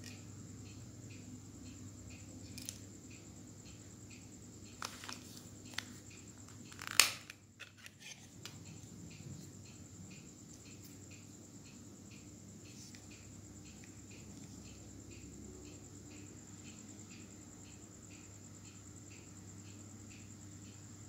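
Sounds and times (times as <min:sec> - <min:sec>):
sharp plastic snap: 0:06.8 - 0:07.4.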